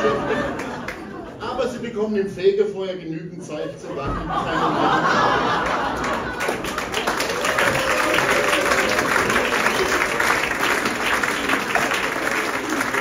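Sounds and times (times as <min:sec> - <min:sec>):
audience applauding: 0:00.0 - 0:01.2, 0:05.2 - 0:13.0.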